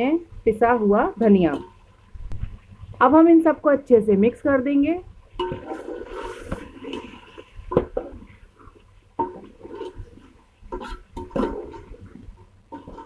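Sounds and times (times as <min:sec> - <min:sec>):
metal spoon scraping a pot: 0:05.4 - 0:13.0.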